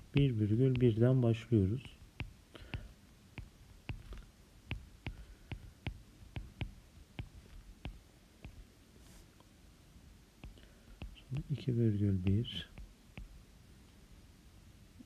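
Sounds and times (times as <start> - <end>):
stylus tapping on glass screen: 0.0 - 1.1, 1.8 - 8.6, 10.4 - 11.7, 12.3 - 13.4.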